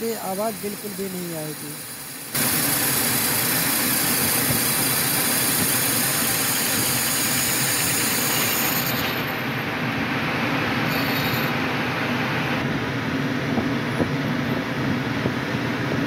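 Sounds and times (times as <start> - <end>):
metal lathe running: 0.0 - 11.8.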